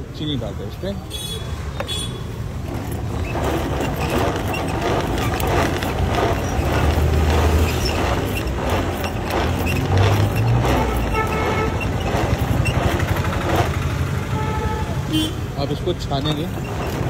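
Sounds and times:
street traffic: 0.0 - 17.0
vehicle horn: 1.1 - 2.3, 10.7 - 12.0, 14.2 - 15.6
mixer gears clattering: 2.4 - 14.2, 15.7 - 17.0.

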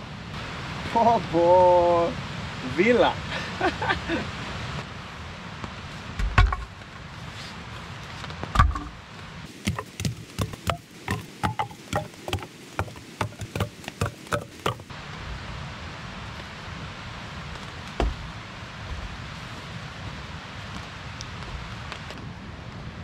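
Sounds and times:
heavy blows on wood: 8.4 - 14.9
sharp knocks on wood: 8.5 - 14.9.

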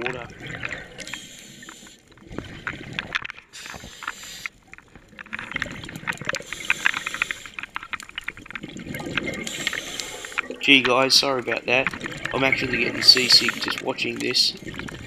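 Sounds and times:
sharp crackling clicks underwater: 0.0 - 15.0
regulator exhale bubbles: 11.9 - 15.0.

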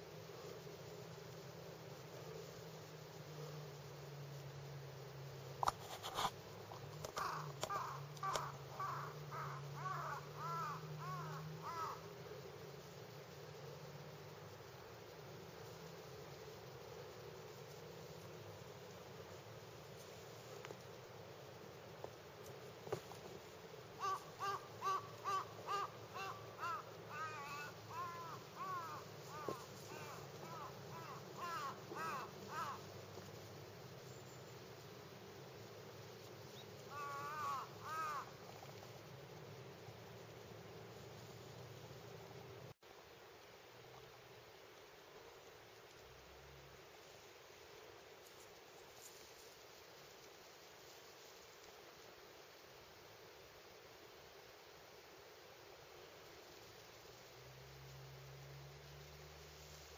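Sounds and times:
crow cawing: 7.1 - 12.1, 24.0 - 32.9, 36.9 - 38.4.

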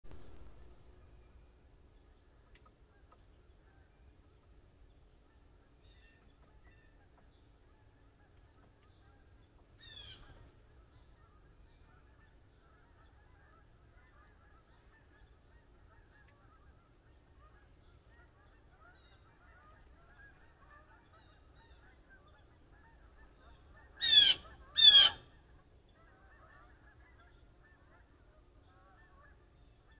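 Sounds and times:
blue jay calls: 9.8 - 10.4, 22.9 - 25.4.

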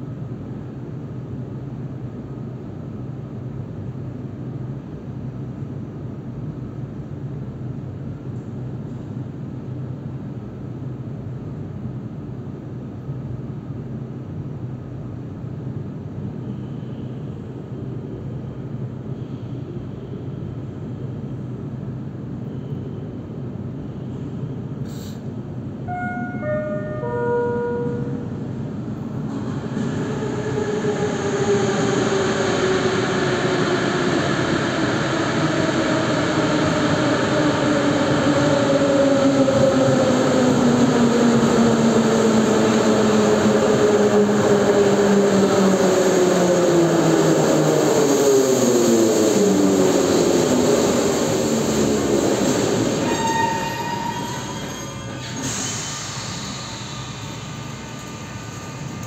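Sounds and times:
whining brake tones falling in pitch: 25.9 - 28.4.

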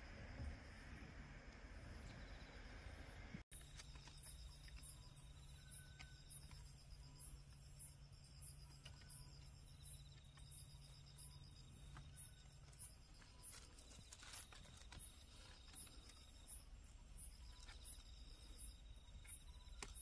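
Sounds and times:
night insects chirping: 0.0 - 20.0.

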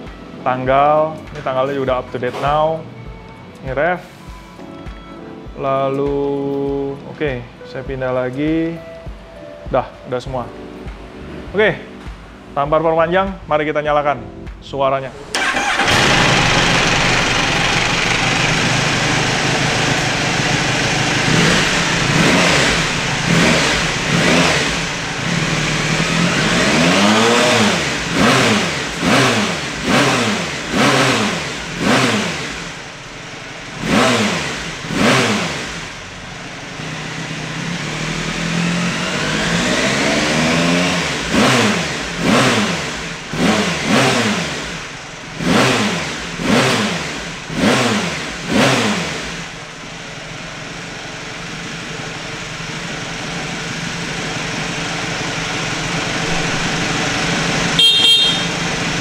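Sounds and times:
motorcycle engine revving: 15.1 - 59.0.

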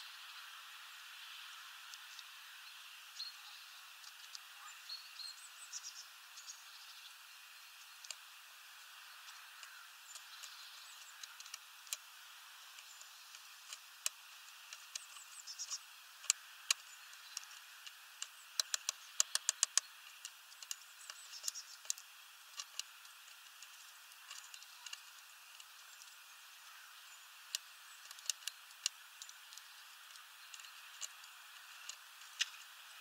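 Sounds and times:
bird pecking seeds on wooden feeder: 7.9 - 33.0.

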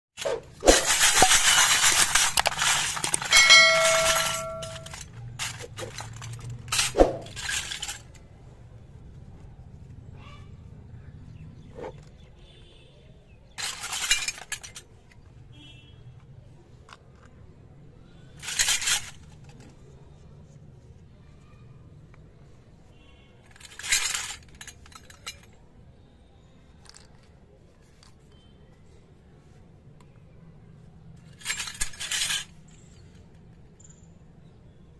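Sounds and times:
toy pots rattling and clinking: 0.6 - 8.2, 23.5 - 25.6, 31.2 - 32.5
bright metallic ring: 3.3 - 5.0.

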